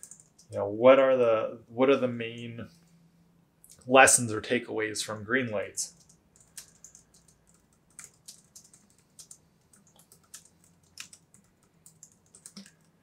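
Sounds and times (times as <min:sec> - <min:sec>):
keyboard typing: 0:00.0 - 0:00.6, 0:05.9 - 0:13.0.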